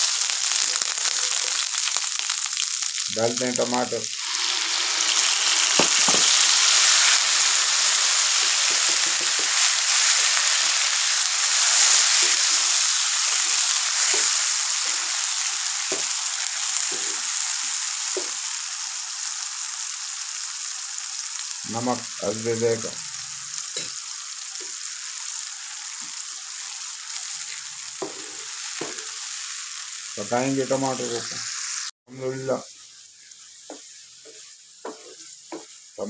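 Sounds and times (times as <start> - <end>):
tomatoes sizzling in a frying pan: 0.0 - 36.0
spatula knocking: 34.8 - 35.8.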